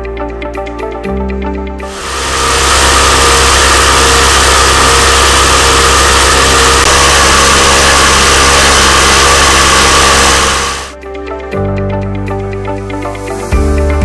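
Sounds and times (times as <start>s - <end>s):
air compressor running: 1.8s - 11.0s.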